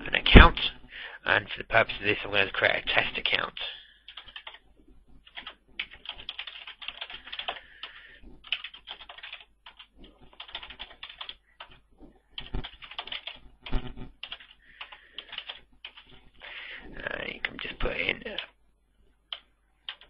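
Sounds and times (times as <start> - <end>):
typing on computer keyboard: 4.1 - 4.6, 5.2 - 11.8, 12.4 - 16.2, 19.3 - 20.0.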